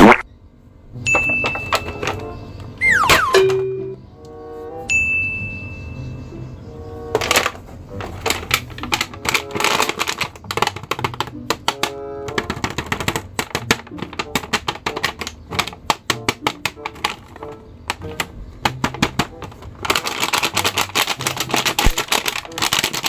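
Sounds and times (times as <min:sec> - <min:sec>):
plastic packaging crackling: 0:07.2 - 0:23.0.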